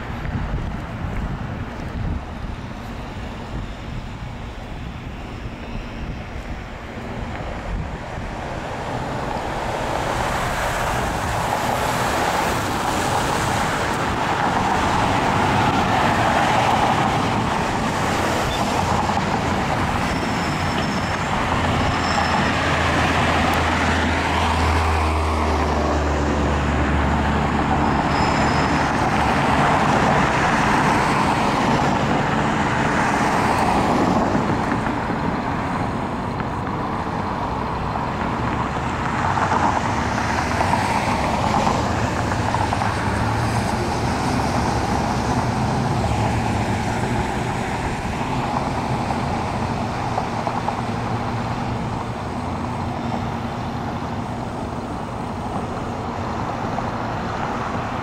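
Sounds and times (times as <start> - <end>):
cars and trucks passing: 0.0 - 58.0.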